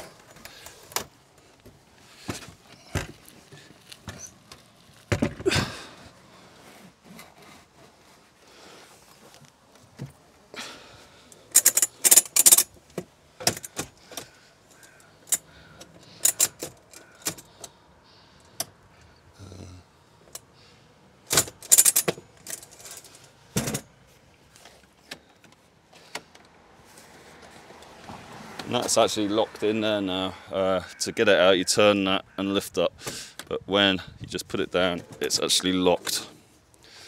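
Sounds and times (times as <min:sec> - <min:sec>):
metal frame clattering and rattling: 0:21.3 - 0:23.9.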